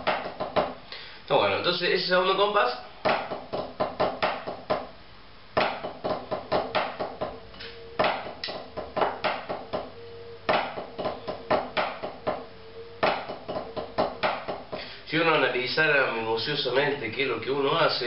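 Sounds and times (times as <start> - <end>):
drumsticks on practice pad: 5.6 - 14.9.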